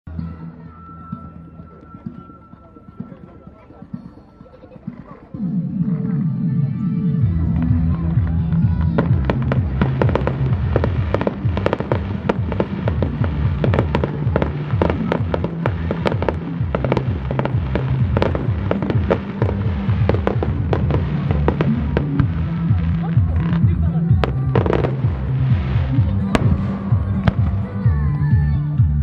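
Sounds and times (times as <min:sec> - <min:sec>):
music playing: 0:00.0 - 0:29.0
fireworks cracks and bangs: 0:08.0 - 0:27.9.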